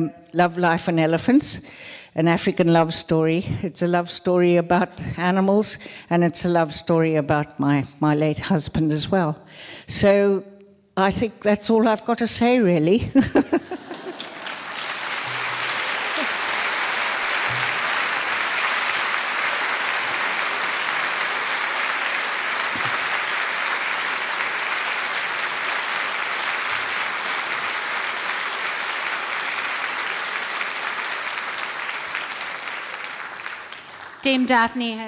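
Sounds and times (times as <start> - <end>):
audience applauding: 13.4 - 34.6.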